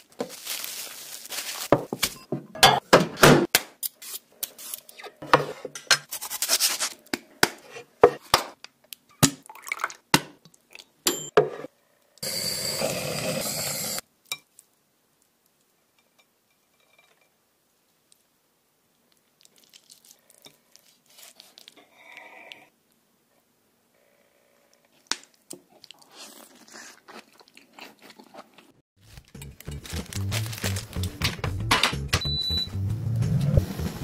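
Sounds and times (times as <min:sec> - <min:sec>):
kitchen blowtorch hissing: 0:12.2 - 0:14.0.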